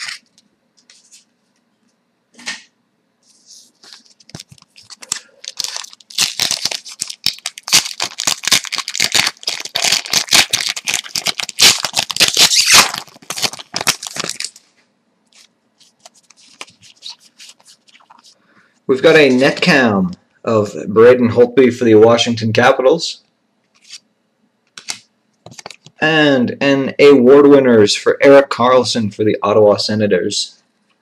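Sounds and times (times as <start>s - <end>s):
cards being handled: 3.3s - 14.6s, 15.3s - 18.4s, 23.7s - 24.0s, 24.7s - 26.0s
foil wrapper tearing and crinkling: 4.2s - 14.6s, 15.4s - 18.3s.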